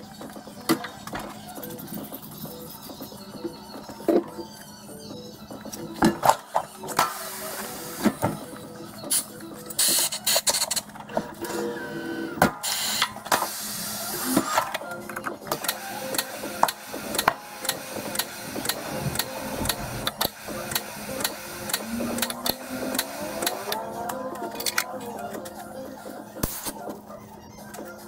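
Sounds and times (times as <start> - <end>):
air hiss bursts: 12.6 - 14.5, 15.6 - 23.8
steady low hum: 15.0 - 25.9.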